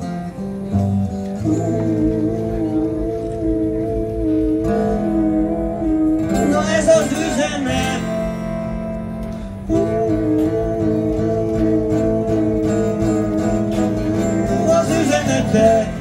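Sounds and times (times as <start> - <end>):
amplified acoustic guitar: 0.0 - 16.0.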